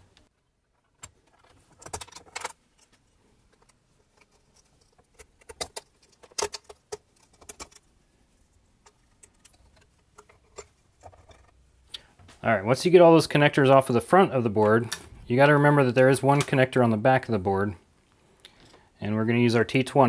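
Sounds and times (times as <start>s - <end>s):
plastic connectors clicking and rattling: 0.7s - 7.9s.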